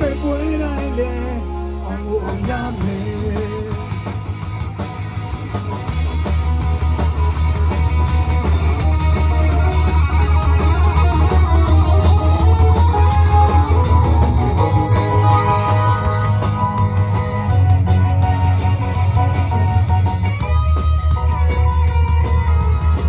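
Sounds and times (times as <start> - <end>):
person singing: 0.0 - 4.0
live rock band playing: 0.0 - 23.0.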